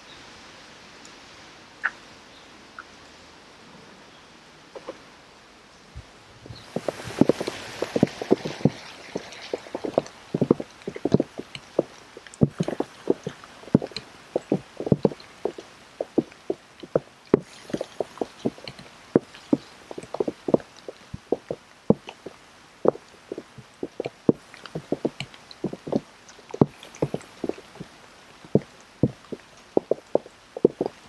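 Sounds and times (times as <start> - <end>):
rain drips plinking: 6.6 - 31.0.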